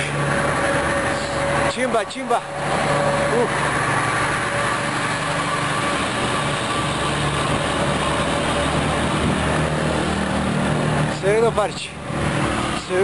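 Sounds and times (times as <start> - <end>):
road noise rushing: 0.0 - 13.0
truck engine humming: 0.0 - 13.0.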